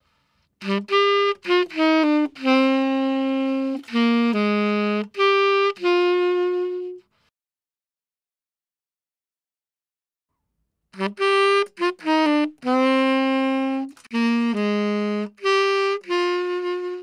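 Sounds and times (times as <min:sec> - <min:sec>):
tenor saxophone jazz phrase: 0:00.6 - 0:07.0, 0:11.0 - 0:17.0.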